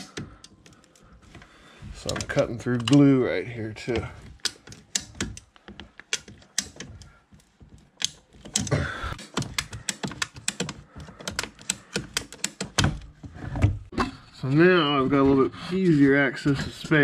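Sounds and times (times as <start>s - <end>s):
plastic pipe crunching: 0.0s - 14.0s
ratcheting pipe cutter clicking: 8.0s - 12.9s.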